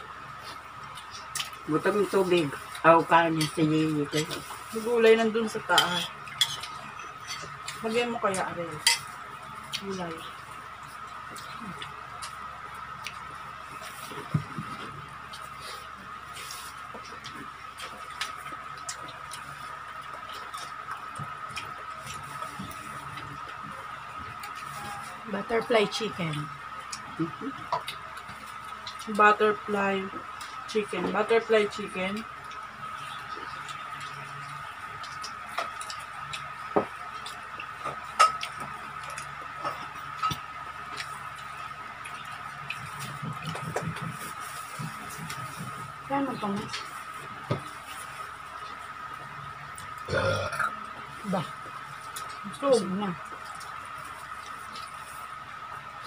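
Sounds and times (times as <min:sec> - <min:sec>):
steady high-pitched hum: 0:00.0 - 0:56.0
chewing clicks and smacks: 0:17.0 - 0:22.2, 0:26.3 - 0:29.2, 0:32.4 - 0:44.0.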